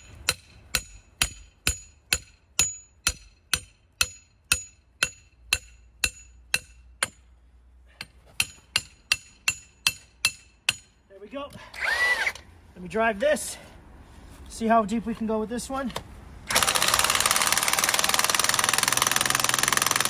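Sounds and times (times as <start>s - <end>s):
hammer striking steel: 0.0s - 7.2s, 8.0s - 11.0s.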